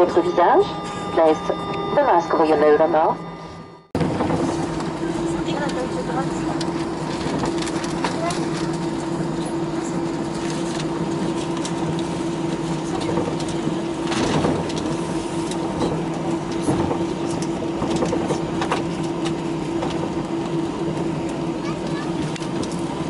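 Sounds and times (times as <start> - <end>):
airplane cabin engine drone: 0.0 - 23.0.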